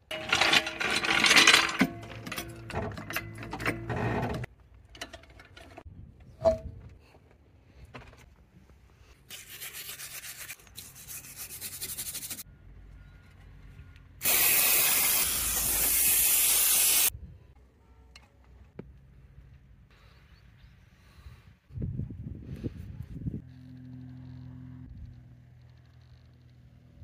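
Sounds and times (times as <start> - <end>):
spray jet hissing: 14.2 - 17.1.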